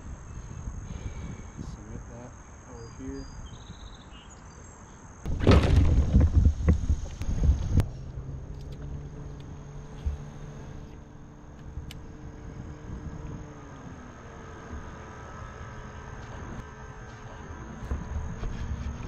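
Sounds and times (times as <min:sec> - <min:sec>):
insects buzzing: 0:00.0 - 0:19.0
distant boat engine drone: 0:06.4 - 0:19.0.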